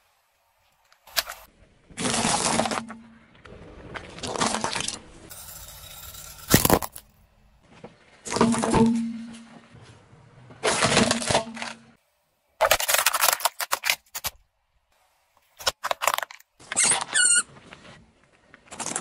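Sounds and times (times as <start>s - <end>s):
ceramic breaking: 5.5s - 7.1s
hard plastic splitting: 12.6s - 14.4s.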